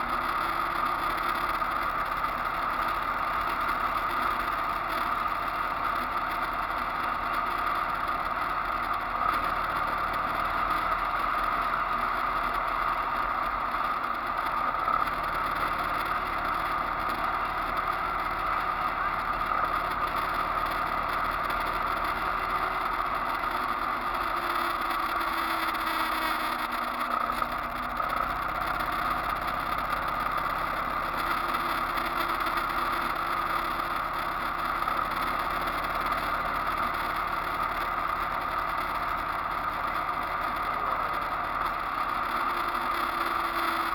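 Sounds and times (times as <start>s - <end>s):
motorcycle engine cruising: 0.0s - 43.9s.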